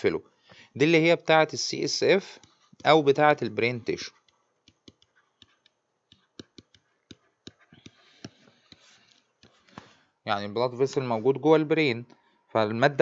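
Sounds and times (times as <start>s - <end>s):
pen scratching: 3.9s - 9.8s
digital pen tapping on tablet: 4.1s - 9.6s.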